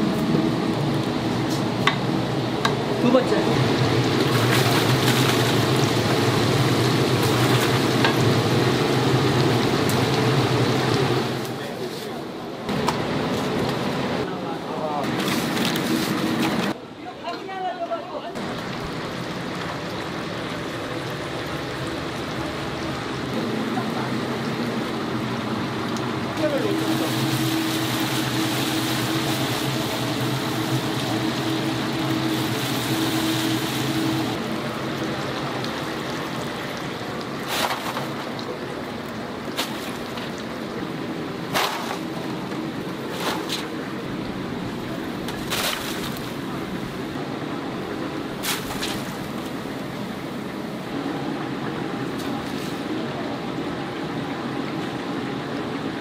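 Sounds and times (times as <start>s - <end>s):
burner hum: 0.0s - 16.8s, 18.4s - 55.4s
chicken sizzling in oil: 26.4s - 34.4s.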